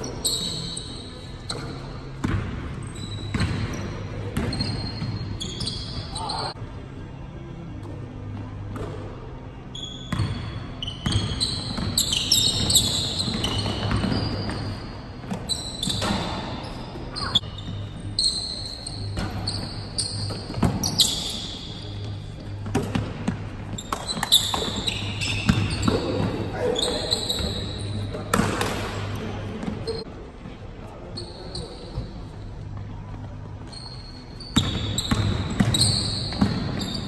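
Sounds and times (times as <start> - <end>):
sneaker squeaks: 0.0 - 6.6, 9.6 - 30.1, 31.0 - 37.0
basketball bouncing: 1.5 - 2.5, 3.3 - 3.8, 34.6 - 36.8.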